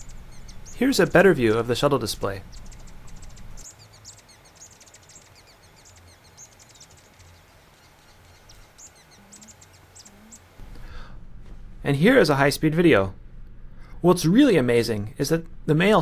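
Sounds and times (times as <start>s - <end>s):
hummingbird high thin chirps: 0.0s - 1.2s, 2.4s - 10.5s.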